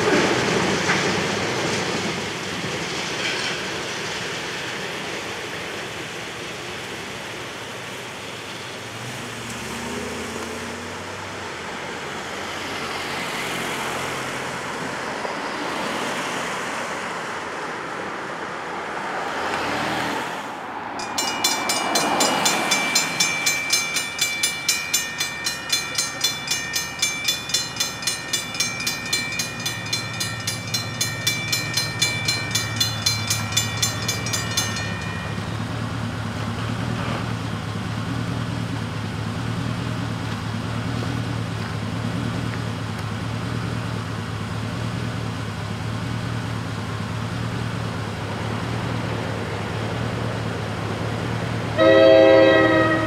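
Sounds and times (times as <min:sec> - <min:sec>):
low steady engine hum: 0:20.5 - 0:53.0
crossing bells ringing rapidly: 0:21.0 - 0:36.4, 0:51.8 - 0:53.0.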